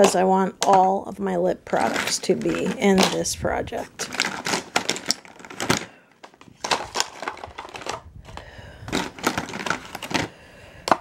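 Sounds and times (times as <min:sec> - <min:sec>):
plastic tubes clicking together: 0:04.0 - 0:11.0.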